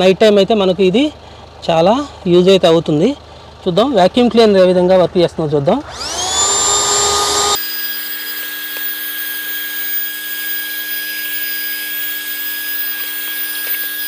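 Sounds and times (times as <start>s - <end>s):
handheld vacuum cleaner whining: 5.8s - 14.0s.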